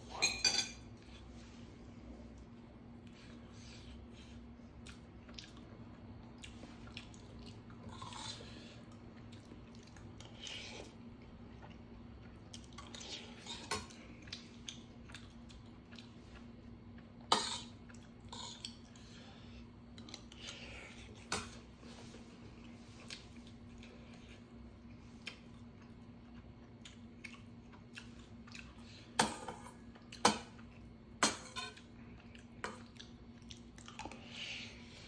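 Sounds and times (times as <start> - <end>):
chewing: 4.8 - 19.1, 22.0 - 28.9, 31.7 - 34.4.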